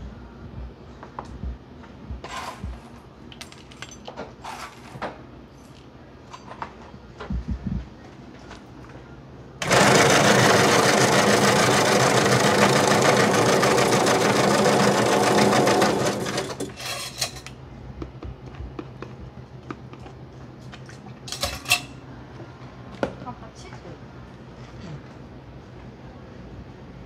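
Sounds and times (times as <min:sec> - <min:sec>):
ice shaving machine grinding: 0:09.6 - 0:16.7.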